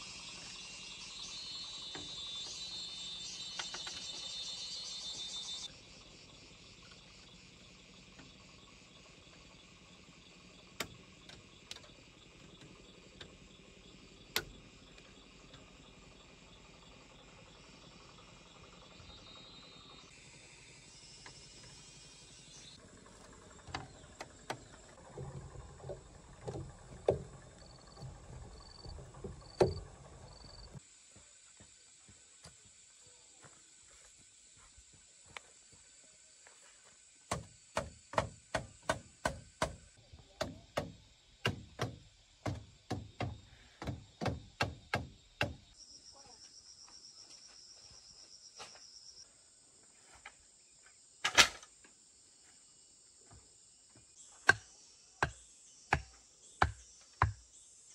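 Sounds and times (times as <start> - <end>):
hand tool striking bamboo: 37.3 - 39.8, 40.4 - 45.6, 54.4 - 57.4.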